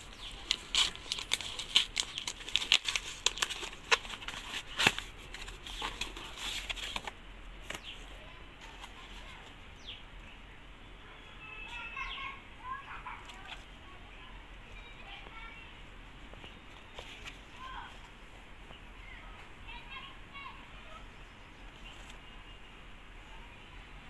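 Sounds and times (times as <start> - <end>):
cardboard rustling: 0.0 - 9.6, 16.3 - 18.2, 21.7 - 22.3
cardboard box being torn open: 0.4 - 7.0.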